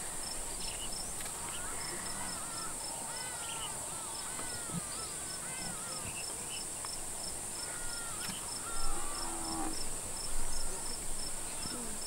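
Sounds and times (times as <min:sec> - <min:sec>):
insect chirping: 0:00.0 - 0:12.0
thin wavy whistled calls: 0:00.6 - 0:06.7.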